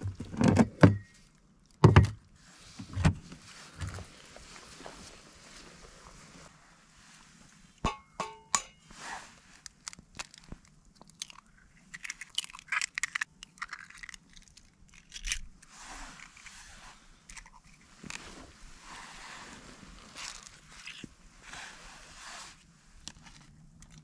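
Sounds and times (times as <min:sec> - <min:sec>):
crunching and rustling: 0:09.3 - 0:21.8, 0:22.5 - 0:24.0.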